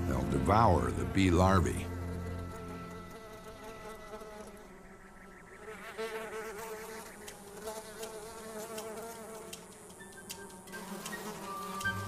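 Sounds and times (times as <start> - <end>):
fly wings buzzing: 1.2 - 12.0
faint ticks: 7.2 - 12.0.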